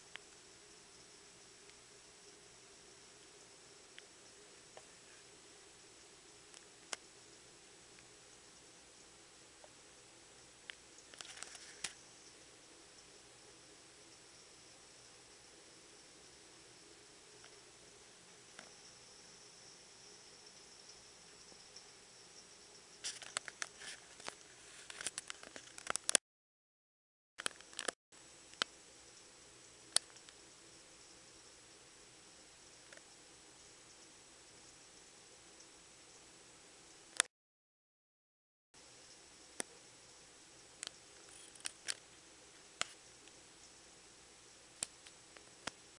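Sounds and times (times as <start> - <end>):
faint heavy rain hiss: 0.0 - 25.4, 38.8 - 46.0.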